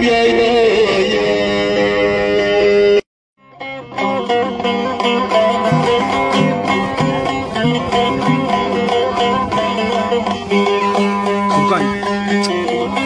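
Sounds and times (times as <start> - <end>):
plucked lute folk melody: 3.4 - 13.0.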